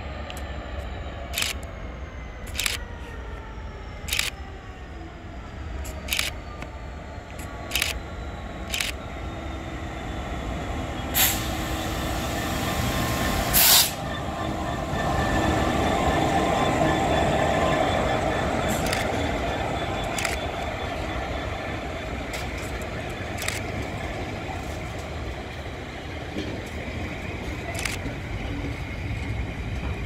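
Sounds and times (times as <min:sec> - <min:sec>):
diesel locomotive engine: 0:00.0 - 0:30.0
train wheel noise: 0:00.0 - 0:30.0.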